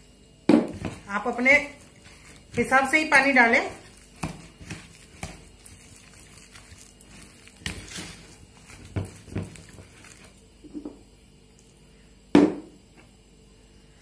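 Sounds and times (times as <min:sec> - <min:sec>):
spoon stirring thick batter: 0:00.7 - 0:10.7.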